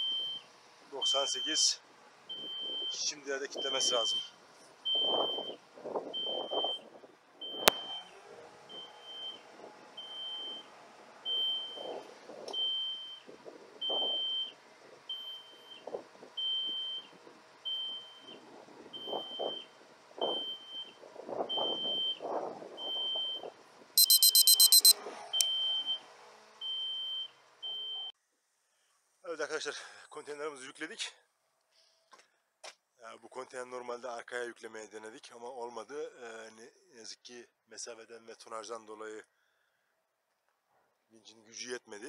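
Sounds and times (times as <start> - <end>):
crane warning beeping: 2.3 - 4.3, 4.9 - 5.6, 11.3 - 11.8, 24.0 - 26.0
sharp click: 24.0 - 24.9
shrill rapid beeping: 24.0 - 24.9.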